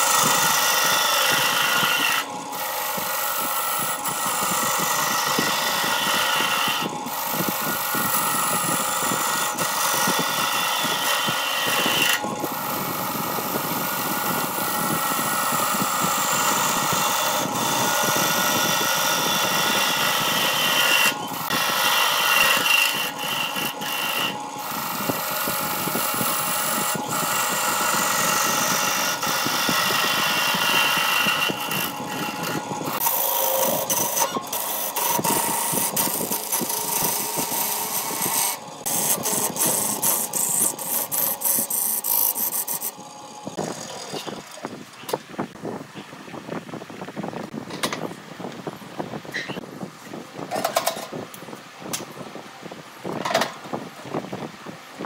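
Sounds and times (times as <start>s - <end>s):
lathe motor whine: 0.0s - 45.7s
chisel scraping wood: 19.0s - 25.3s, 26.3s - 42.9s.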